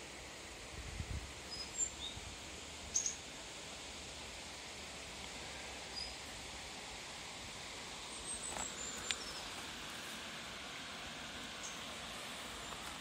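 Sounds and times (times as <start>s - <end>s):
steady background hiss: 0.0s - 13.0s
faint bird chirps: 1.4s - 2.2s, 2.9s - 3.3s, 5.9s - 6.3s.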